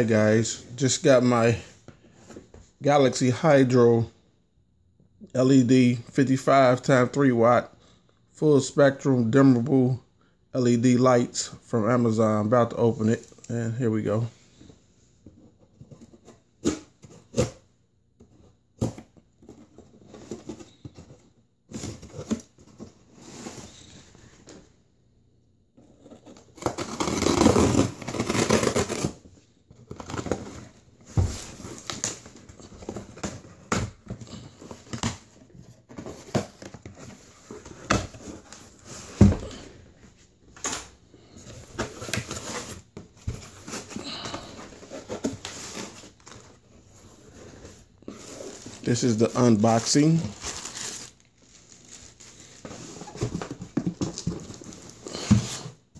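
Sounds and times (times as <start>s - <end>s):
cardboard rustling: 25.8s - 55.7s
cardboard tearing and scraping: 26.0s - 29.2s, 48.0s - 53.5s.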